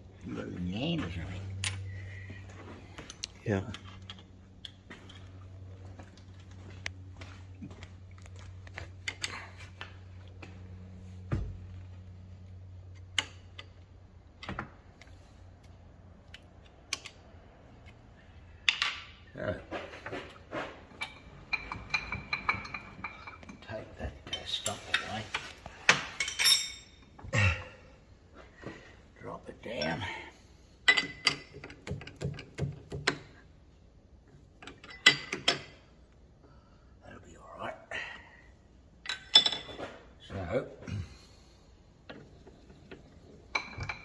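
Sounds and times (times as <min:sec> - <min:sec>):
metal clicks and knocks: 0:30.9 - 0:33.4, 0:34.3 - 0:35.8
wrench clicking and clanking on metal: 0:34.6 - 0:35.8.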